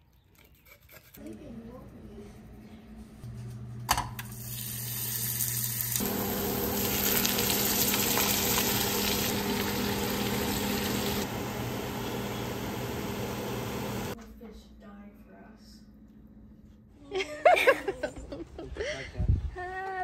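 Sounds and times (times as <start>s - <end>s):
fish sizzling in a skillet: 4.4s - 11.3s.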